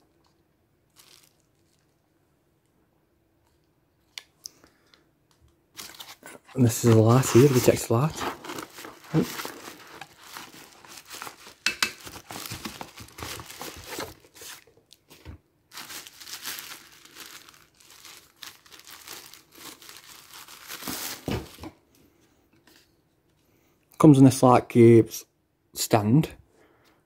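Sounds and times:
plastic bag crinkling: 0:00.9 - 0:02.0, 0:05.8 - 0:21.7.

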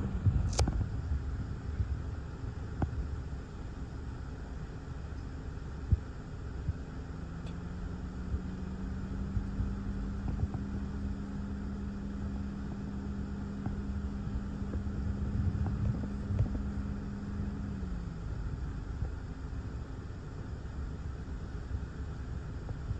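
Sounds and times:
gusty wind on microphone: 0:00.0 - 0:03.0, 0:14.3 - 0:17.6
low hum sliding down in pitch: 0:07.2 - 0:18.5.

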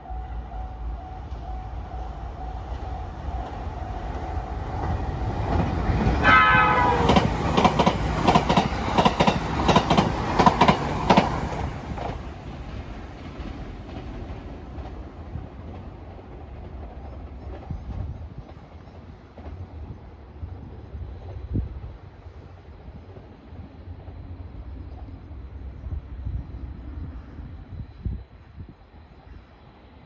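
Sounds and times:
train wheels clickety-clack: 0:02.6 - 0:20.1
electronic train horn blast: 0:06.1 - 0:07.5.

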